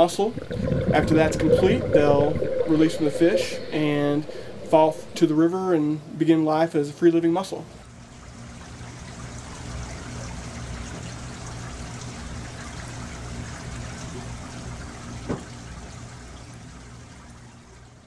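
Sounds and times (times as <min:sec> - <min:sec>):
running water trickling: 0:00.0 - 0:05.9
low steady hum: 0:00.0 - 0:06.3.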